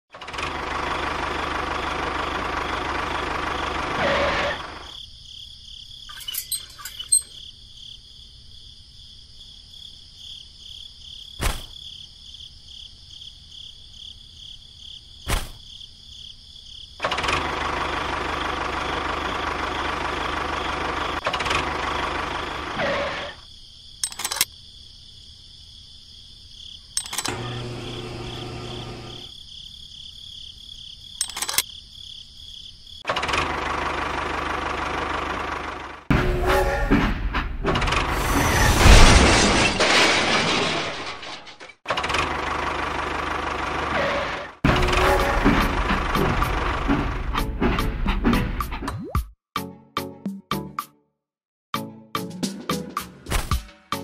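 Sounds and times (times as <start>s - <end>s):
sharp clicks: 27.0s - 27.4s, 31.2s - 31.7s.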